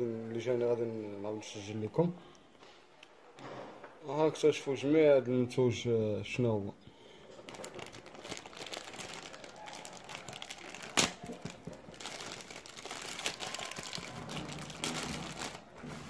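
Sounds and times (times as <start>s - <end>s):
plastic bag crinkling: 7.2s - 15.9s
plastic bag snapping: 7.4s - 15.7s.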